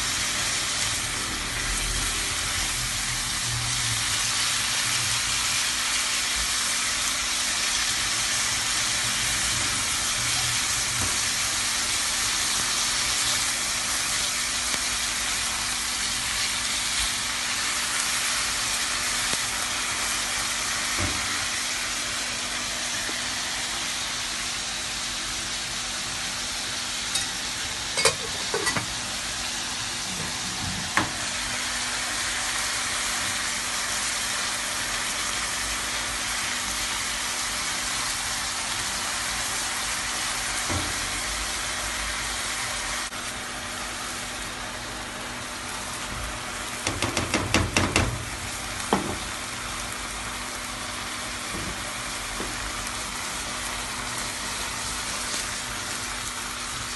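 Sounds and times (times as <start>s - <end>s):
chicken sizzling in frying pan: 0.0s - 56.9s
spatula knocking against pan: 46.8s - 48.2s.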